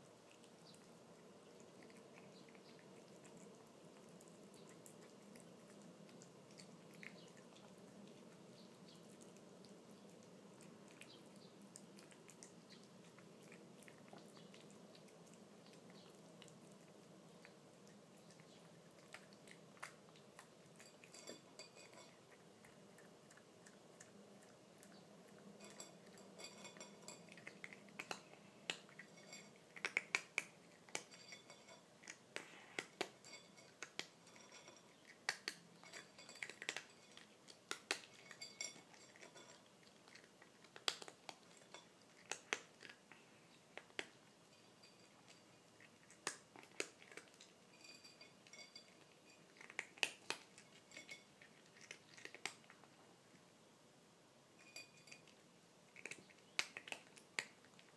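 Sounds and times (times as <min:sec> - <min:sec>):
cat crunching dry food: 0:00.1 - 0:44.2, 0:44.8 - 0:53.1, 0:54.6 - 0:57.9
food clicking against plate: 0:29.7 - 0:31.5, 0:40.1 - 0:43.0.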